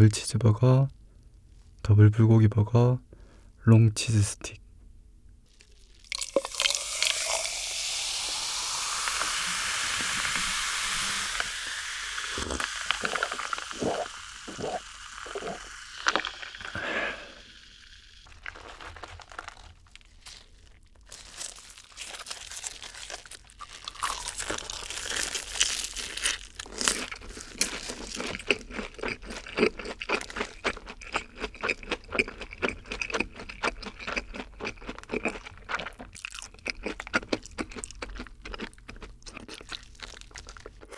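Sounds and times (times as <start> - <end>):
crunchy food chewing: 5.5 - 7.1, 12.2 - 17.2, 18.2 - 40.9
cola poured over ice fizzing: 6.0 - 18.6.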